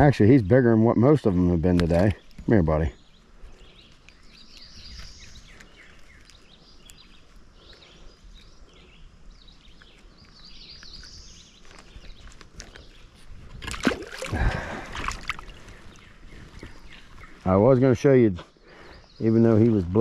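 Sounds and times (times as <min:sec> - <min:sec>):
birds chirping faintly: 0:00.0 - 0:20.0
river ambience: 0:00.0 - 0:20.0
water splashing and sloshing: 0:13.5 - 0:15.6.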